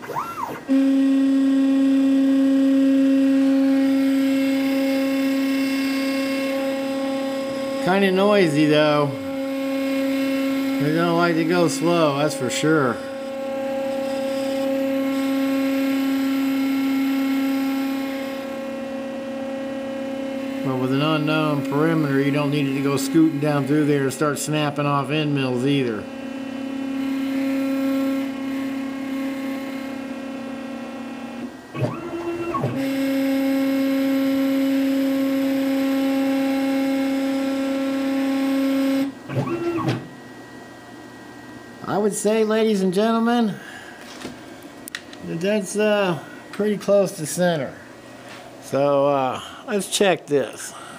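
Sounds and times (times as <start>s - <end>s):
router machine whining: 0.0s - 40.5s.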